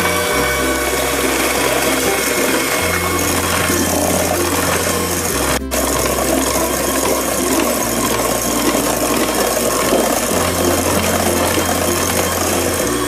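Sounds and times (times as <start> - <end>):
electric hand mixer running: 0.0 - 13.0.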